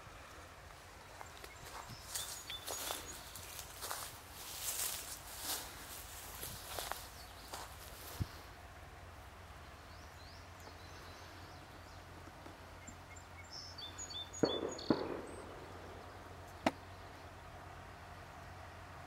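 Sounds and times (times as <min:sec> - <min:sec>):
bird chirping: 0:01.1 - 0:08.4, 0:09.6 - 0:17.3.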